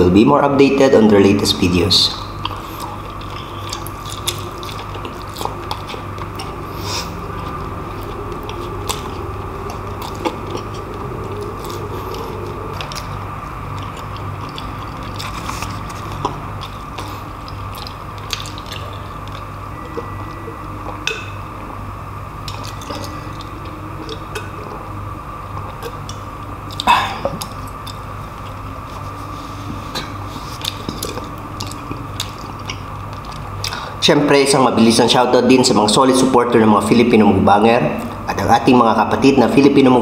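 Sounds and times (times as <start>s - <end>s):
steady low hum: 0.0s - 40.0s
soft chewing: 2.4s - 21.3s, 25.5s - 33.8s.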